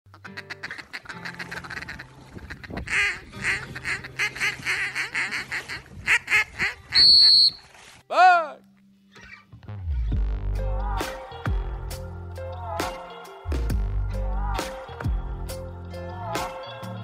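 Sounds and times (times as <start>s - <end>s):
duck quacking: 0.1s - 7.6s
loud high-pitched whistle blast: 7.0s - 7.6s.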